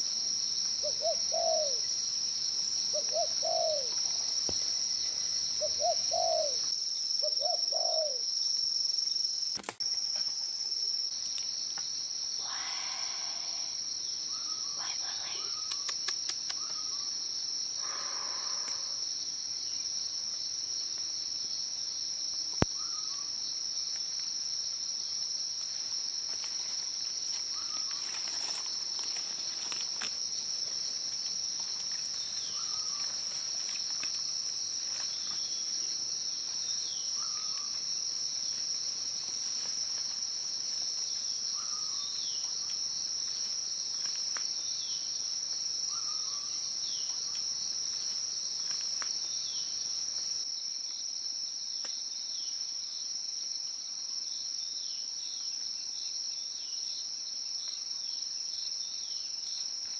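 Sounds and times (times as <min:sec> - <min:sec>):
insect chorus drone: 0:00.0 - 0:59.9
bird chirping: 0:05.1 - 0:08.2.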